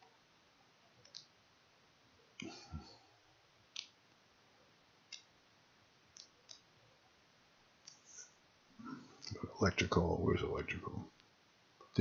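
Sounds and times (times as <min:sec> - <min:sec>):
computer mouse clicking: 0:01.0 - 0:01.3, 0:03.7 - 0:04.0, 0:05.1 - 0:05.3, 0:06.1 - 0:06.7.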